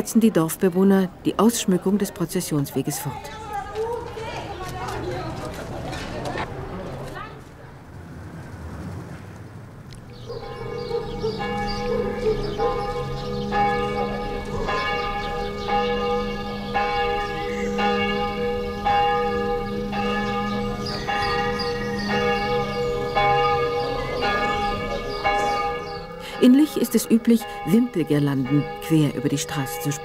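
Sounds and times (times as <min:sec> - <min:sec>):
church bells pealing: 0:10.1 - 0:30.0.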